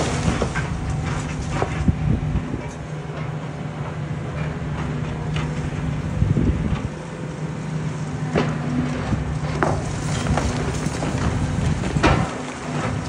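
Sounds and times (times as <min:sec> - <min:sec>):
concrete cracking and breaking: 0:00.0 - 0:01.7
rubble falling: 0:00.0 - 0:01.8, 0:09.5 - 0:13.0
excavator running: 0:00.0 - 0:13.0.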